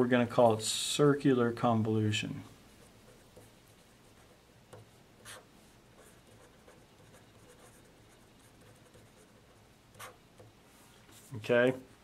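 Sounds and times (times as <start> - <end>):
faint low hum: 0.0 - 12.0
marker scratching on paper: 2.8 - 10.5.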